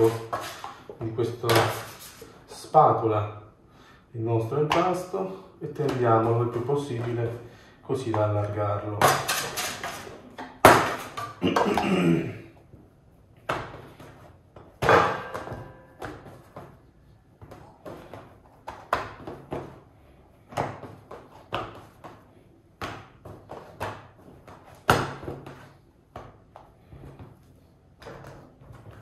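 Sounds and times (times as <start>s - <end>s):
dough slapping on steel worktop: 9.0s - 11.4s, 20.4s - 26.6s.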